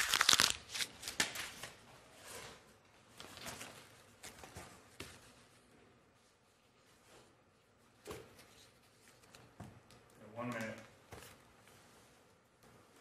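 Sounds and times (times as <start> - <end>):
papers rustling and clicking: 0.0 - 1.8.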